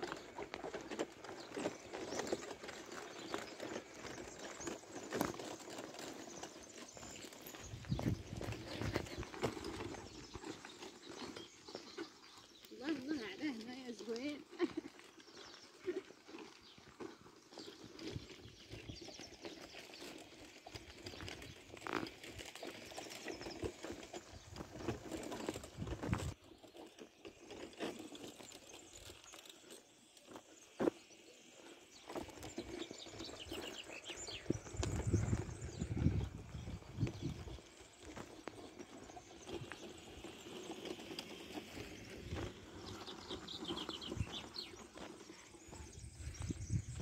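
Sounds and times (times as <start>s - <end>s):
footsteps on gravel: 0.0s - 47.0s
outdoor background noise: 0.0s - 47.0s
bird chirping: 28.4s - 47.0s.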